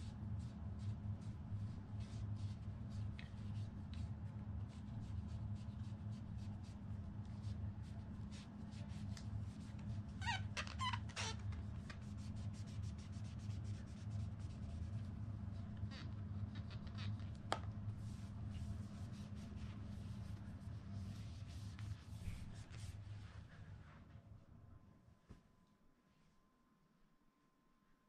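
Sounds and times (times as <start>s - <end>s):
cloth rubbing a fishing rod: 0.0s - 24.1s
steady low hum: 0.0s - 28.0s.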